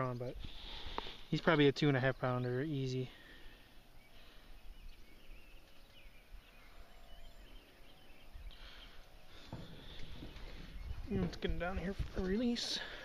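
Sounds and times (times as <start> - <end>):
bird chirps: 1.8 - 11.6.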